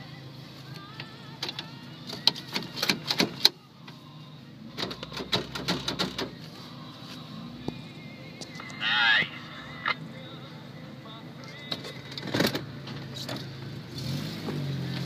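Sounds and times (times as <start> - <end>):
vehicle engine hum: 0.0 - 15.0
rapid clicks and knocks: 4.8 - 6.3.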